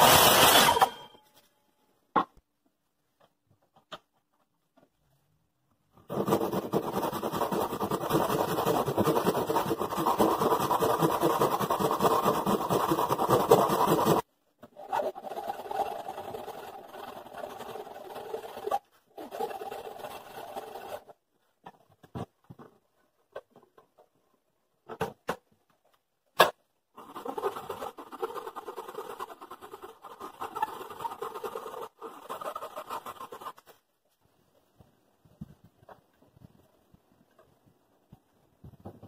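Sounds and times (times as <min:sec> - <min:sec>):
hand tool scraping wood: 0:06.1 - 0:21.2, 0:27.0 - 0:33.8.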